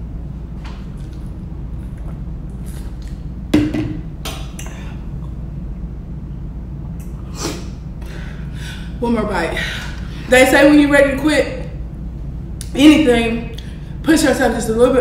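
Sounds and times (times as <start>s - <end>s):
steady low hum: 0.0s - 15.0s
plastic bottle knocking on countertop: 3.6s - 4.0s.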